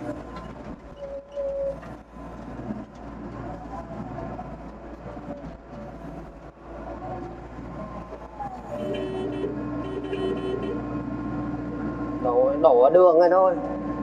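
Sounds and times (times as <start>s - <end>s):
diesel engine under load: 0.0s - 14.0s.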